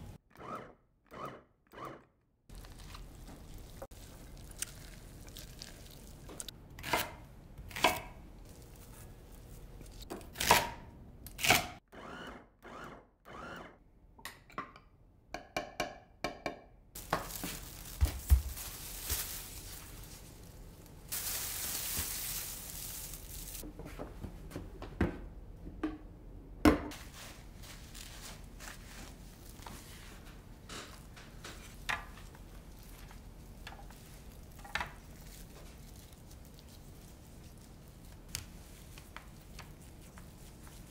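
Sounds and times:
plastic bag rustling: 0:17.0 - 0:23.6.

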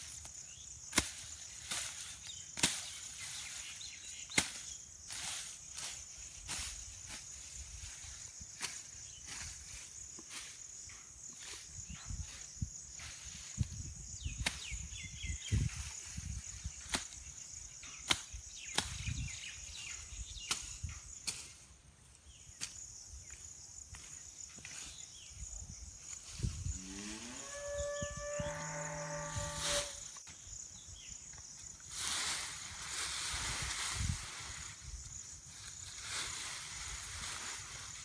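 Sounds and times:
sickle cutting grass: 0:00.0 - 0:10.7, 0:11.3 - 0:14.9, 0:18.0 - 0:19.8, 0:28.5 - 0:30.3, 0:31.8 - 0:38.0
insects buzzing: 0:00.0 - 0:38.0
cow mooing: 0:26.9 - 0:29.9.

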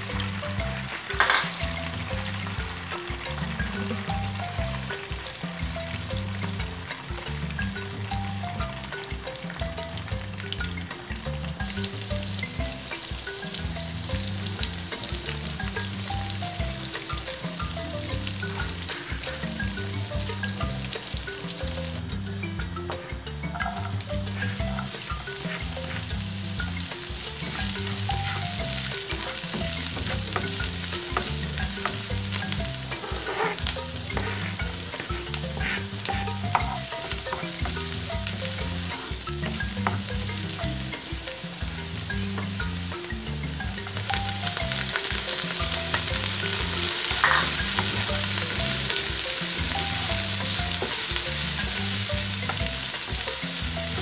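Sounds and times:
vegetables sizzling in hot oil: 0:00.0 - 0:22.0, 0:23.6 - 0:54.0
spatula clicking on pan: 0:44.8 - 0:48.8.

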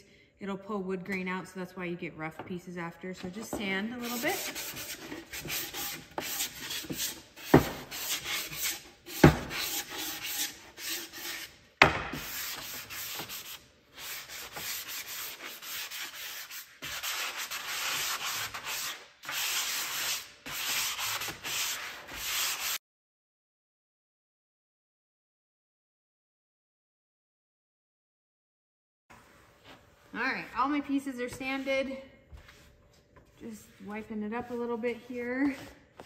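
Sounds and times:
sanding block rubbing wood: 0:04.0 - 0:11.5, 0:12.1 - 0:22.8.

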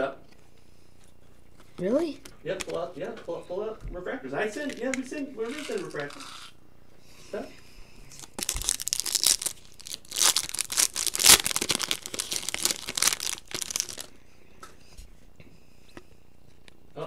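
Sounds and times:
foil wrapper crinkling: 0:08.1 - 0:14.1.

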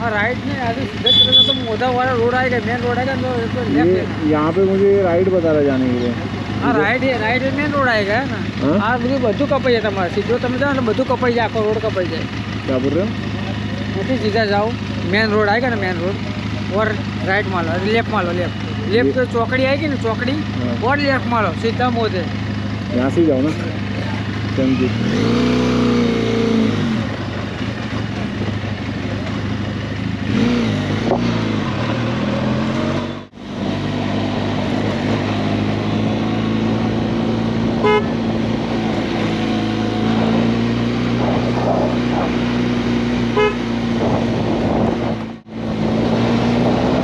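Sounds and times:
motorcycle engine running: 0:00.0 - 0:47.0
horn toots: 0:01.0 - 0:01.8, 0:37.7 - 0:38.3, 0:43.2 - 0:43.9.

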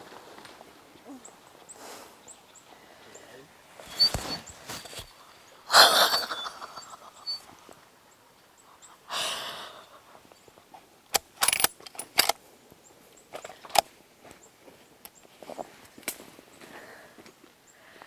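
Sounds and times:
heavy breath: 0:09.0 - 0:10.2, 0:16.6 - 0:17.2
person gasping: 0:09.1 - 0:09.9
gear handling clicks: 0:11.1 - 0:12.4, 0:13.3 - 0:13.9.

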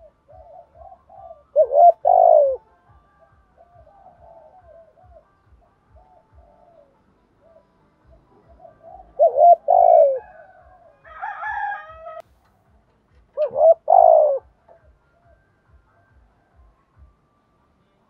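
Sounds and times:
dove cooing: 0:00.0 - 0:12.2, 0:13.4 - 0:15.4.

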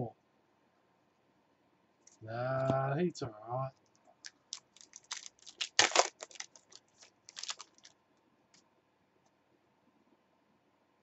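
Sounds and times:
cards clicking and rustling: 0:04.2 - 0:07.9.

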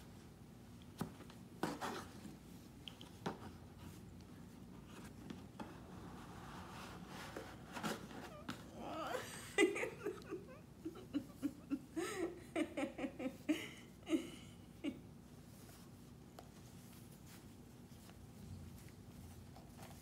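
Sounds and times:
paper and cardboard rustling: 0:01.0 - 0:08.7
woman giggling: 0:08.4 - 0:15.2.

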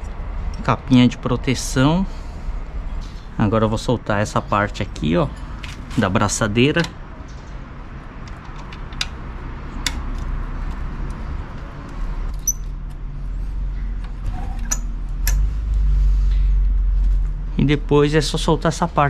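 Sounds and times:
metal key turning exhaust clamp: 0:12.3 - 0:12.7, 0:14.6 - 0:15.4
low rumble: 0:13.1 - 0:19.0.

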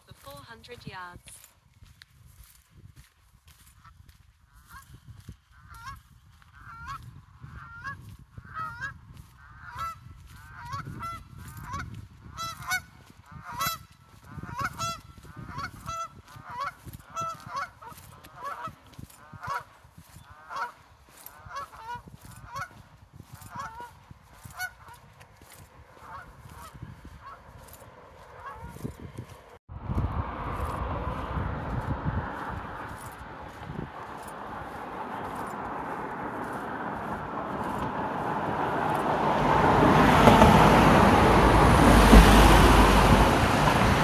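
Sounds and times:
geese honking: 0:05.5 - 0:22.8, 0:23.4 - 0:28.8
low rumble: 0:29.2 - 0:44.0.

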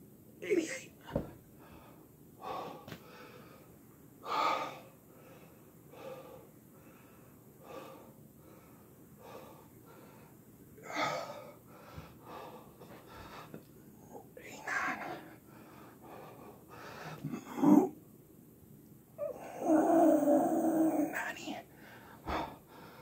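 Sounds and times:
low thump: 0:01.1 - 0:01.4
man gasping breaths: 0:21.7 - 0:23.0.

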